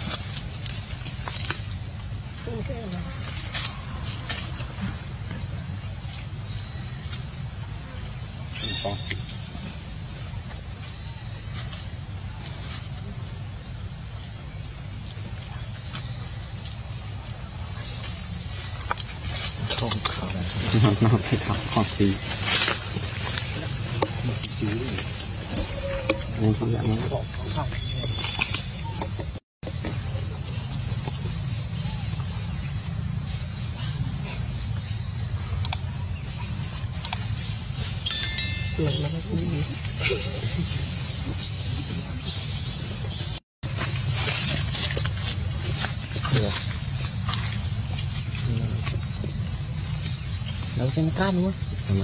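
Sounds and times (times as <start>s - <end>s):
high-pitched insect chorus: 0.0s - 27.7s, 37.4s - 43.4s.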